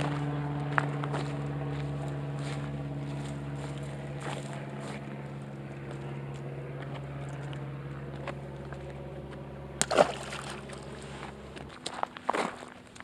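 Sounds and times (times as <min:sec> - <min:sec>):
low motor hum: 0:00.0 - 0:13.0
loud splash in water: 0:09.8 - 0:10.8.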